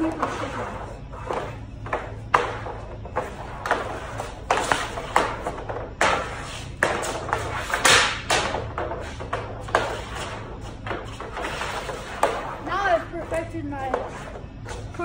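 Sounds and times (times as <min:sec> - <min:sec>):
hockey stick slapping pucks: 0:00.0 - 0:14.3
pucks hitting metal goal frame: 0:02.0 - 0:12.9.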